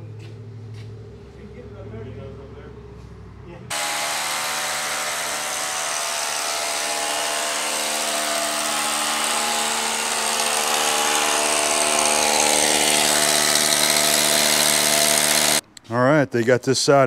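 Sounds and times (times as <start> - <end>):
power drill boring into concrete: 3.7 - 15.6.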